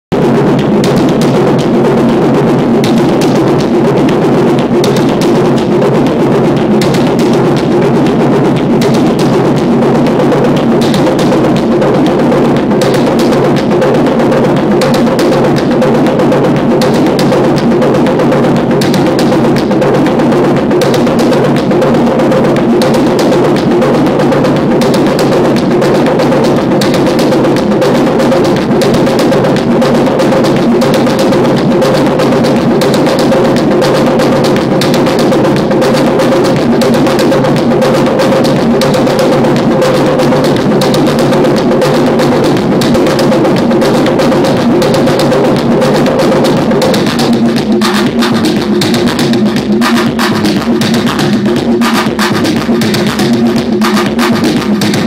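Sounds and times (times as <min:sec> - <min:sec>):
driving machine beat: 0:00.0 - 0:55.0
sharp percussive hits: 0:00.1 - 0:55.0
synthesizer drone: 0:00.1 - 0:55.0.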